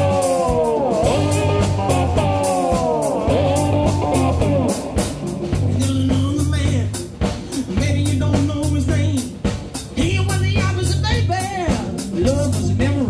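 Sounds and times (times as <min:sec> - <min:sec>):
bending lead melody: 0:00.0 - 0:07.2
bass line: 0:00.0 - 0:13.0
drum kit beat: 0:00.0 - 0:13.0.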